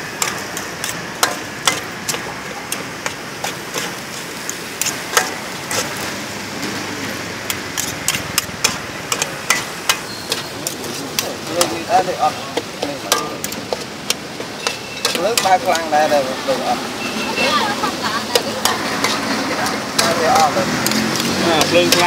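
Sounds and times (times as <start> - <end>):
steady frying hiss: 0.0 - 22.0
metal spatula clinking on wok: 7.5 - 16.1, 18.2 - 22.0.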